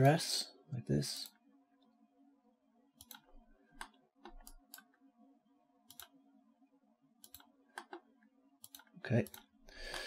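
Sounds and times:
low steady hum: 0.0s - 10.0s
computer mouse clicking: 3.0s - 5.0s, 5.9s - 6.2s, 7.2s - 10.0s.

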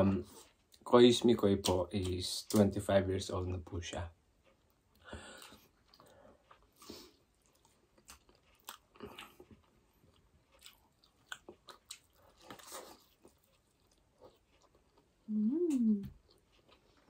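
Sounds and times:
mouths chewing food: 4.4s - 15.3s.

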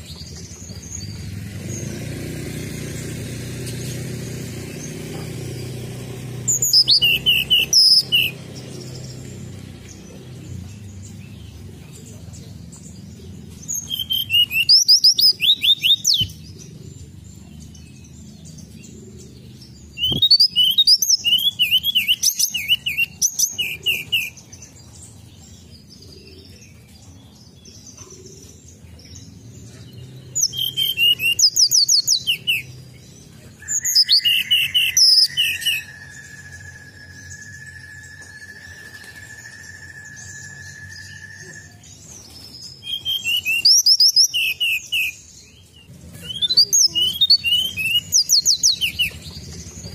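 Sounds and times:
bird singing whistled trills: 6.4s - 12.2s, 12.8s - 16.7s, 19.5s - 28.0s, 30.0s - 49.9s.

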